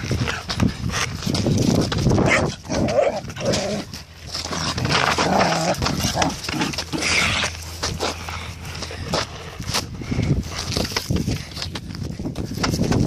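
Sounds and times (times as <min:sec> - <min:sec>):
dogs growling: 0:02.2 - 0:08.5.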